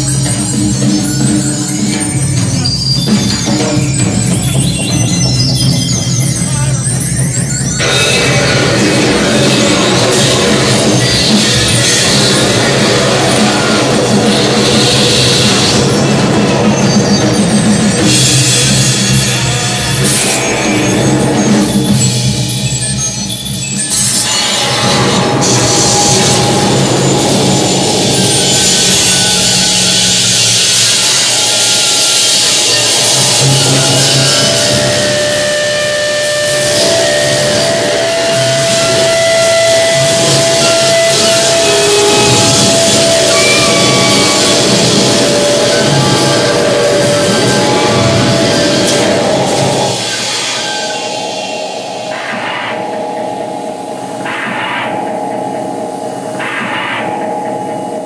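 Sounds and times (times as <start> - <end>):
drum kit playing: 0.0 - 23.0, 23.9 - 57.4
electronic noise: 23.8 - 58.0
long whistling tones: 25.2 - 52.2.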